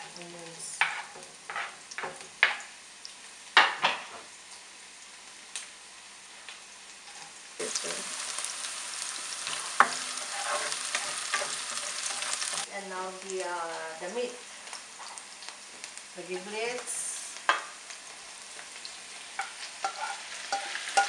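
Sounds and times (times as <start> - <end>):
onions sizzling in oil: 0.0 - 21.0
spatula knocking and scraping pan: 0.8 - 2.6, 9.5 - 12.6, 19.4 - 21.0.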